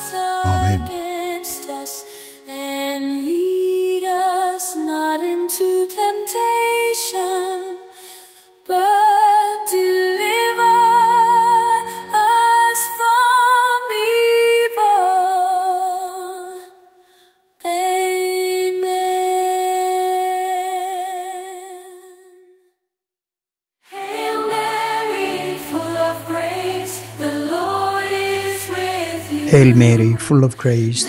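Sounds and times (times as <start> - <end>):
woman singing devotional melody: 0.0 - 17.0, 17.6 - 22.6.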